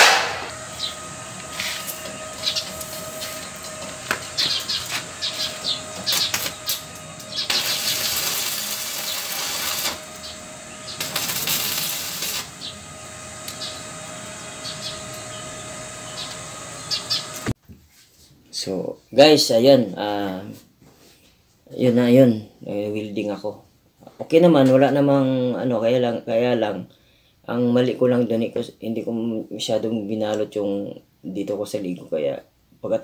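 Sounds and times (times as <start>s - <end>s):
welding arc crackling and hissing: 0.0s - 17.5s
steady hum: 0.0s - 17.6s
birds chirping: 0.5s - 17.5s.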